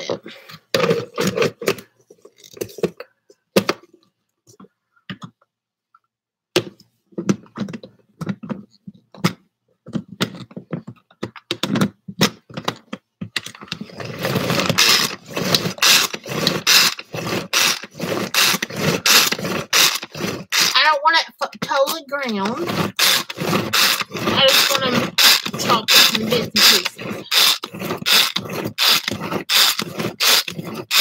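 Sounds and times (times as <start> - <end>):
food chopper chopping: 13.8 - 20.9, 22.3 - 31.0.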